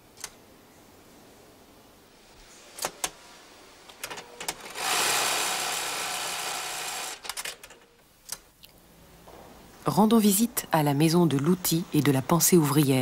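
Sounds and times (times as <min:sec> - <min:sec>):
industrial sewing machine running: 0:04.7 - 0:07.2.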